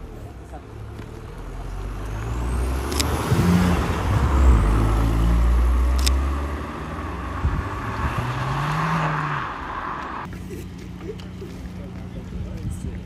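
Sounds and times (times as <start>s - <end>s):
car accelerating away: 0.8s - 10.3s.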